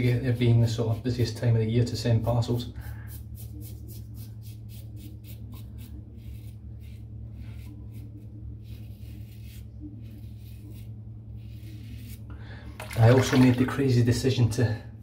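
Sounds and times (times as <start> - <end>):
razor scraping skin: 3.0 - 12.3.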